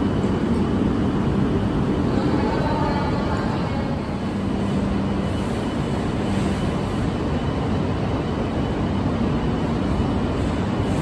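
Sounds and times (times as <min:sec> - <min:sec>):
low train hum: 0:00.0 - 0:11.0.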